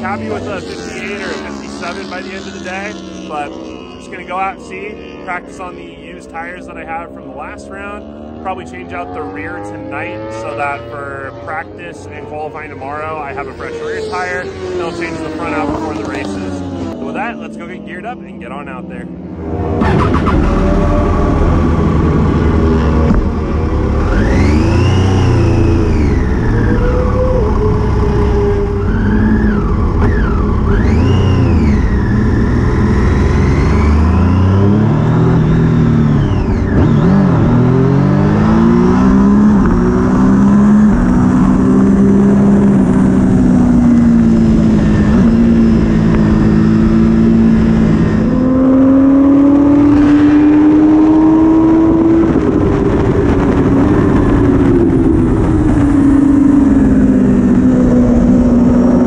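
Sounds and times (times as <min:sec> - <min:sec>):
motorcycle engine revving: 0:00.0 - 0:59.0
wind rush: 0:38.3 - 0:59.0.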